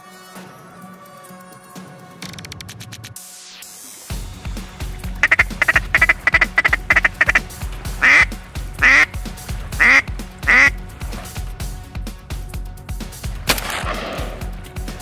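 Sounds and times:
background music with steady beat: 0.0 - 15.0
duck call quacks: 5.2 - 10.8.

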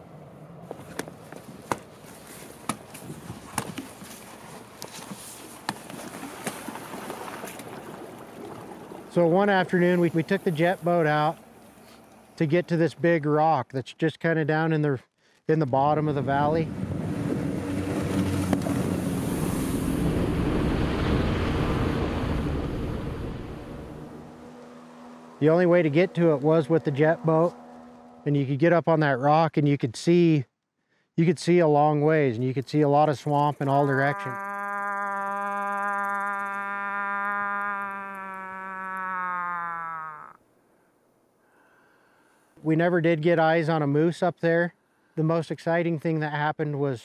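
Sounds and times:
rushing water and wind: 16.0 - 26.8
boat engine drone: 16.0 - 28.8, 33.4 - 40.7.

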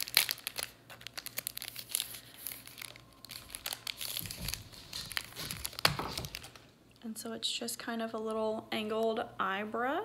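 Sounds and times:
crinkly packaging crackling: 0.0 - 6.8.

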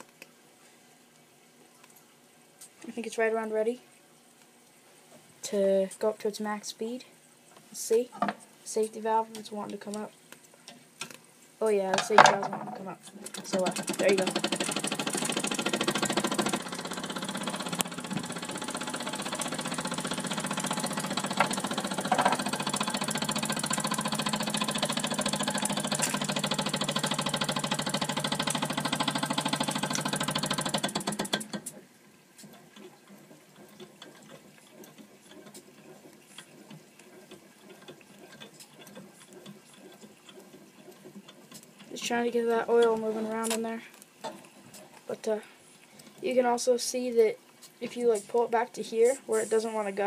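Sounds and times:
toy steam engine chuffing: 13.5 - 31.5.

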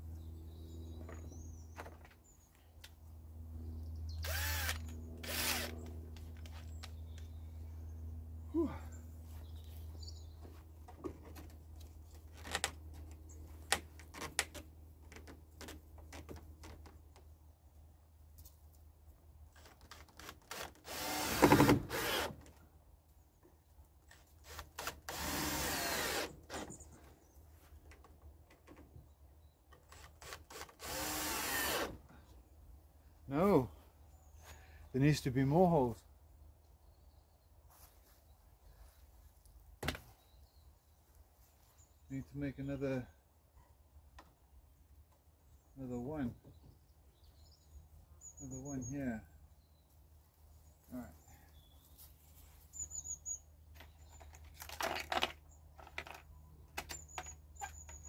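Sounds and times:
cordless drill driving screws: 4.2 - 5.9, 20.2 - 22.4, 24.4 - 26.8, 29.9 - 32.0.

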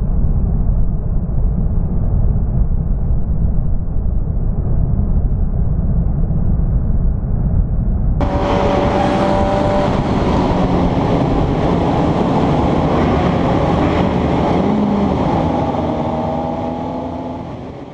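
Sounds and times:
wind and road noise: 0.0 - 17.9
motorcycle engine whining: 8.2 - 17.9.

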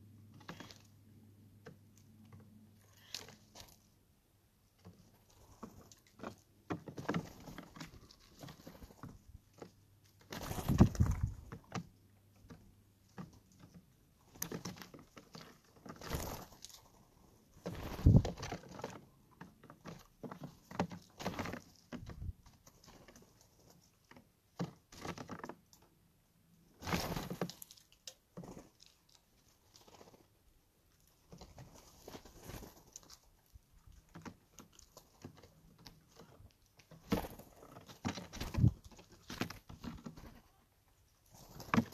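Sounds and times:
bird feet and bills tapping: 4.7 - 26.0, 30.9 - 40.6
wing flapping: 10.3 - 11.5, 15.6 - 17.0, 17.6 - 18.8, 37.0 - 40.5.

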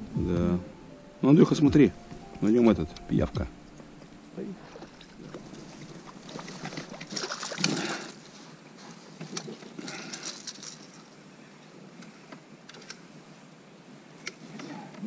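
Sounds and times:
fish splashing in water: 4.6 - 8.2.

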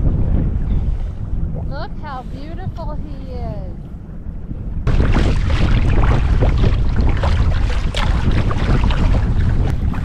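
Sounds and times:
wind buffeting microphone: 0.0 - 10.0
water splashing against kayak: 4.9 - 10.0.

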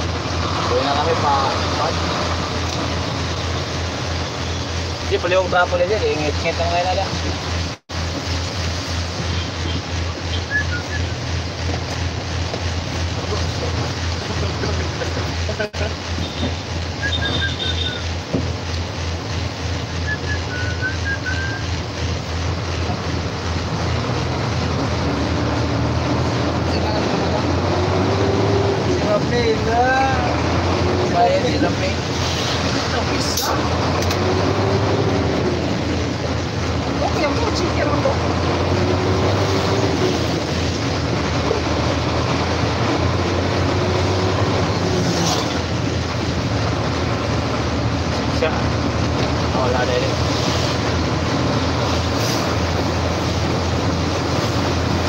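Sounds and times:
vehicle engine and road noise: 0.0 - 55.0
high whistled notes: 10.3 - 11.2, 17.0 - 18.0, 20.0 - 21.7.

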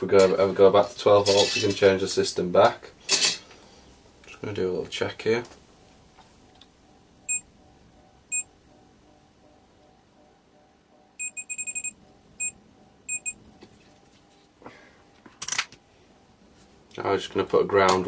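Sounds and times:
multimeter beeping: 7.2 - 8.6, 11.2 - 13.4.

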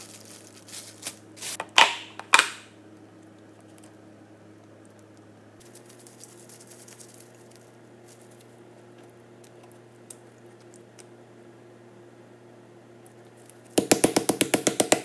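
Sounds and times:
low steady hum: 0.0 - 15.0
hands tapping on cutting board: 13.8 - 15.0.

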